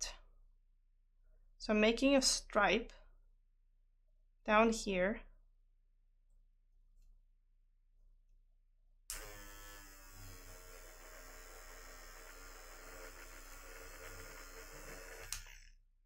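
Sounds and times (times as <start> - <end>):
electric eraser motor buzzing: 9.1 - 15.7.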